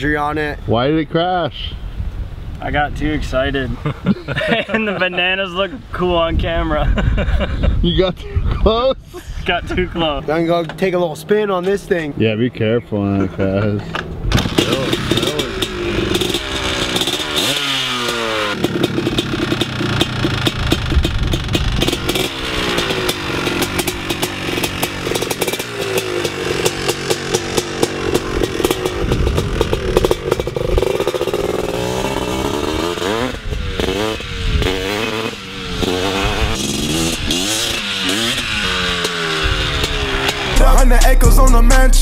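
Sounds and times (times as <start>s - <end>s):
atv engine revving: 13.9s - 42.0s.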